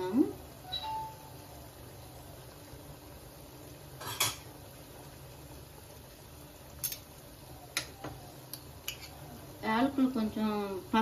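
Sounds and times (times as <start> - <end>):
syrup bubbling in a pot: 0.0 - 11.0
metal spoon clinking on pot: 8.8 - 9.2.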